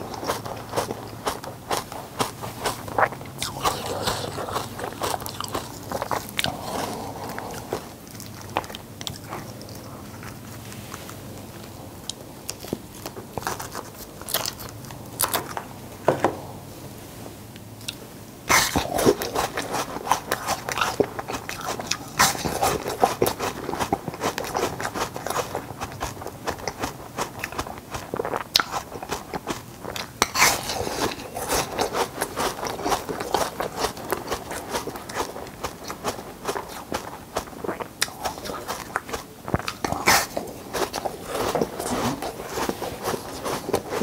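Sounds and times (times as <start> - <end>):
person crunching ice cubes: 0.0 - 10.4, 18.5 - 44.0.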